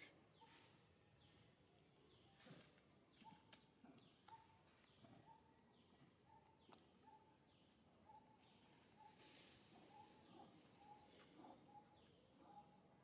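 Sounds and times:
faint high bird chirps: 0.0s - 1.4s.

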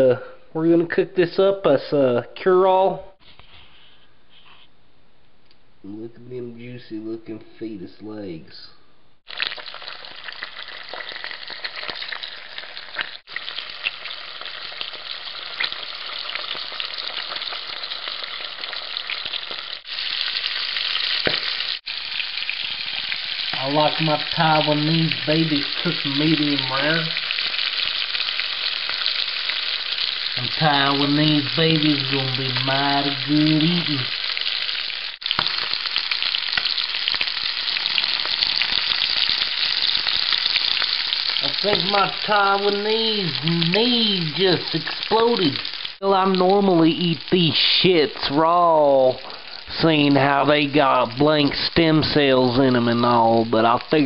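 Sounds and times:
oil popping: 9.3s - 48.3s
frying sizzle in oil: 9.3s - 54.0s.

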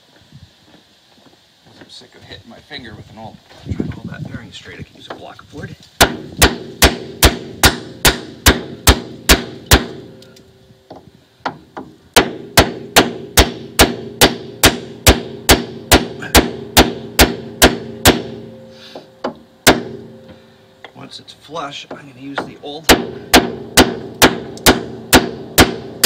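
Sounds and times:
hammer blows on wooden block: 6.0s - 10.1s, 10.9s - 20.4s, 21.8s - 26.0s
low ringing note: 16.5s - 21.6s.

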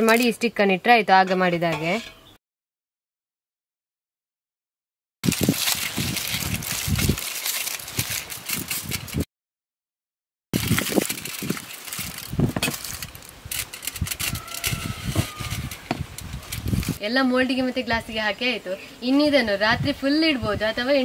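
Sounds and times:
aluminium foil crinkling: 5.2s - 9.3s, 10.6s - 17.0s
knife piercing foil: 5.3s - 9.3s, 10.6s - 17.0s.

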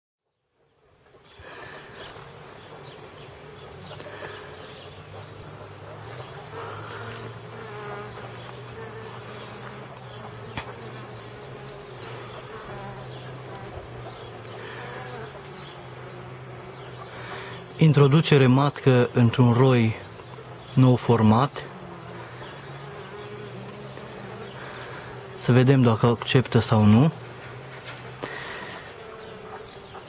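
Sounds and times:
cricket chirping: 0.2s - 17.8s, 20.1s - 20.7s, 21.7s - 25.2s, 27.4s - 30.0s
bees humming: 0.5s - 30.0s.

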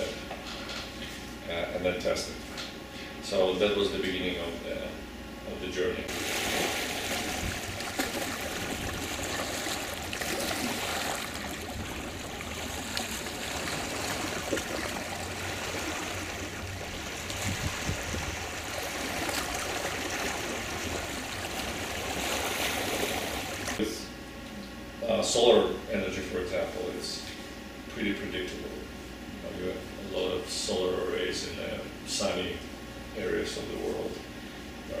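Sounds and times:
lake water splashing and lapping: 6.1s - 23.8s
legs wading through water: 6.1s - 23.8s.

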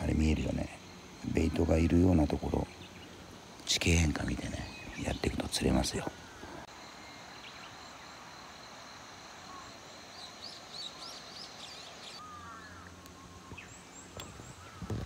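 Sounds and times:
birds singing faintly: 0.0s - 15.0s.

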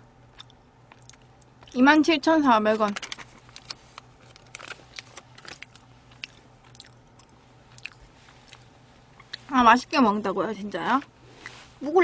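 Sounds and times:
close chewing mouth clicks: 0.3s - 1.8s, 5.6s - 8.6s.

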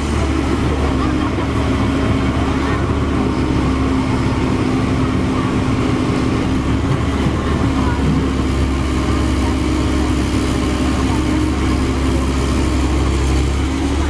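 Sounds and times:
diesel engine running: 0.0s - 14.0s.

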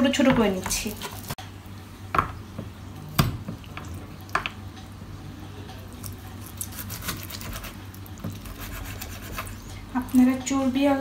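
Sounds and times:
slicing and handling meat: 5.9s - 10.3s.

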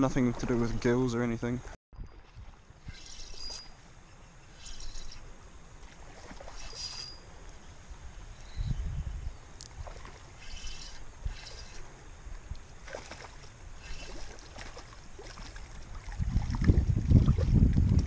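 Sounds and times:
river water running: 0.0s - 8.5s, 9.3s - 18.0s
water splashing: 5.8s - 7.2s, 9.6s - 18.0s.

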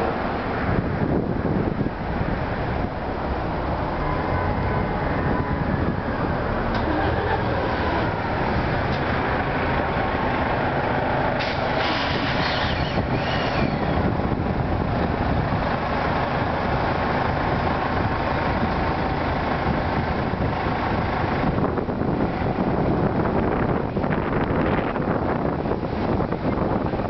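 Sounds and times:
train pulling away: 6.6s - 14.1s
air brakes hissing: 11.4s - 14.0s.

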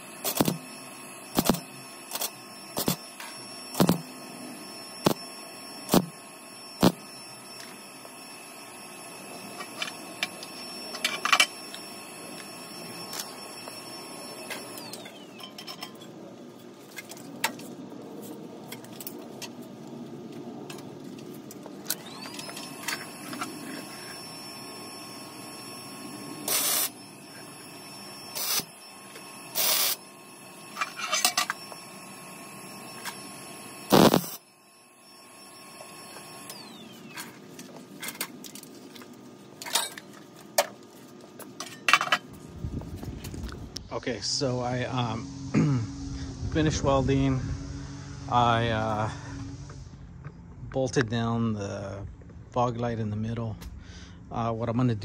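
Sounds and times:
welding bursts: 0.0s - 16.0s, 21.8s - 34.5s
steady machine whine: 0.0s - 55.0s.

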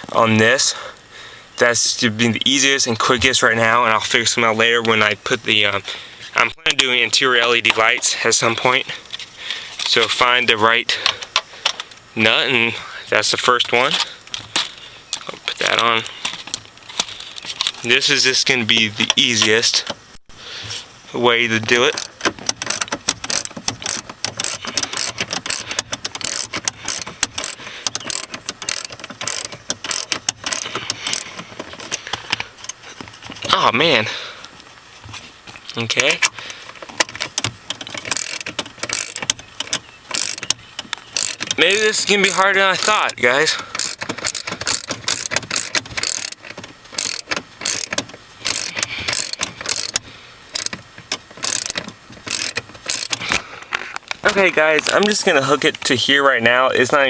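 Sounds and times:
socket ratchet clicking: 21.9s - 32.0s, 36.9s - 53.2s.

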